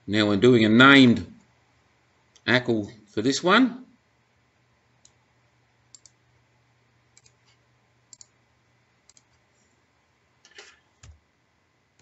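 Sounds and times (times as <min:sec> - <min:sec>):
faint computer mouse clicks: 0:05.9 - 0:06.2, 0:07.2 - 0:08.4, 0:09.1 - 0:09.4.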